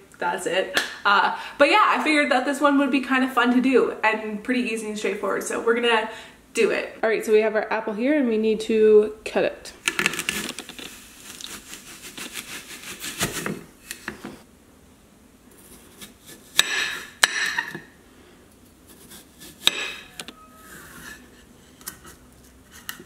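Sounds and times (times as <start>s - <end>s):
knife cutting apple: 15.6s - 17.8s, 18.8s - 20.3s.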